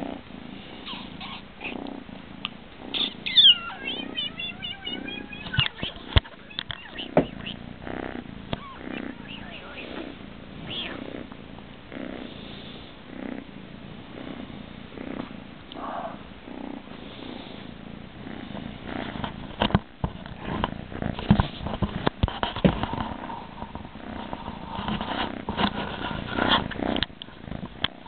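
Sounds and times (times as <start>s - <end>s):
kitten purring: 0.0s - 28.0s
knocks and rustling on camera: 3.8s - 7.6s, 19.0s - 28.0s.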